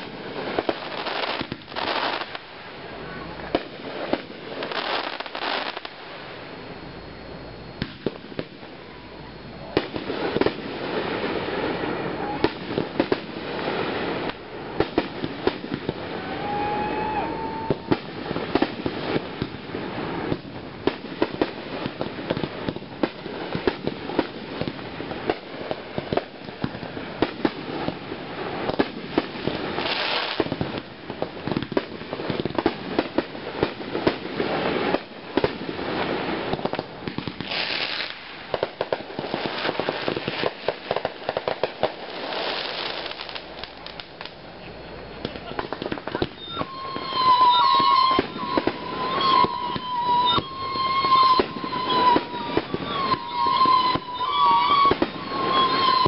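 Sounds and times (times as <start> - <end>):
firework crackling: 0.0 - 56.0
firework hiss: 0.0 - 56.0
firework shells bursting: 12.1 - 44.4, 45.2 - 56.0.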